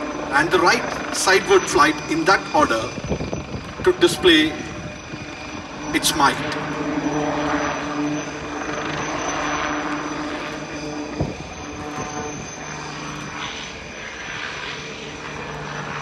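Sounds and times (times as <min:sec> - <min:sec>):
helicopter rotor drone: 0:00.0 - 0:16.0.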